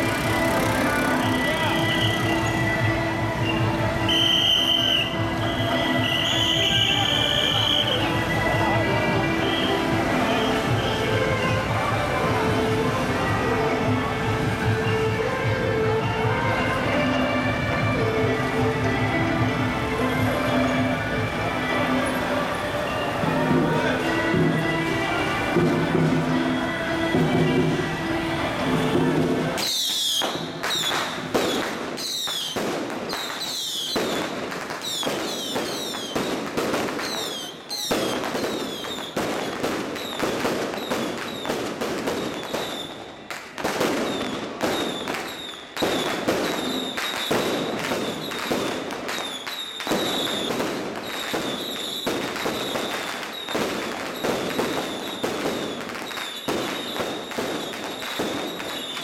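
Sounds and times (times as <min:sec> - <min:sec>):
firecrackers popping: 0:00.0 - 0:15.0, 0:28.6 - 0:59.0
thin high whistle: 0:03.4 - 0:08.1.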